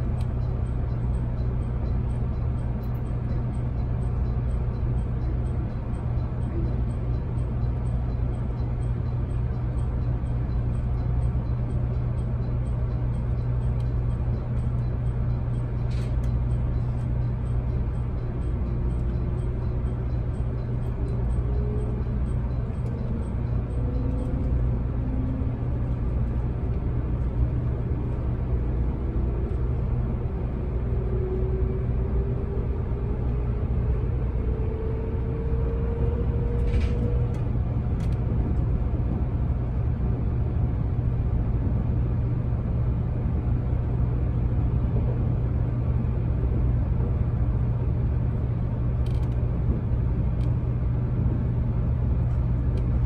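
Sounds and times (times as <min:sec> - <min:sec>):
train wheels rumbling on rail: 0:00.0 - 0:53.0.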